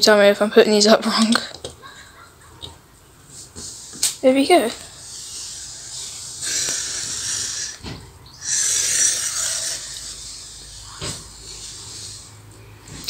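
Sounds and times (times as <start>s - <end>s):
breaths close to microphone: 4.8s - 13.0s.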